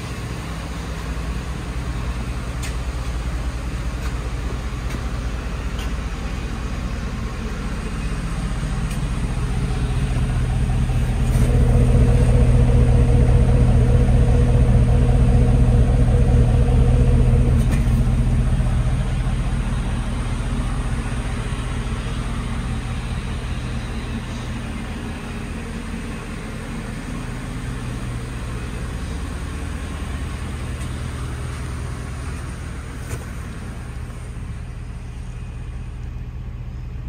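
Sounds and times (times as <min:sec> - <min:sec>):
truck engine idling: 0:00.0 - 0:37.0.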